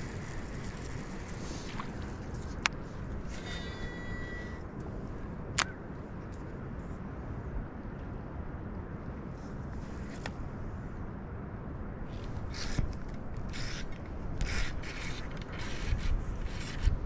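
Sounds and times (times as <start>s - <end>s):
fishing reel handling creaks: 0.0s - 2.6s, 3.3s - 4.6s, 12.4s - 16.8s
wind rumbling on microphone: 0.0s - 17.0s.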